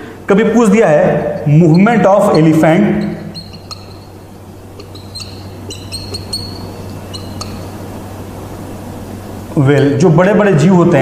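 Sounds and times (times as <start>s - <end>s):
steady low hum: 0.0s - 11.0s
bird chirping: 1.4s - 10.1s.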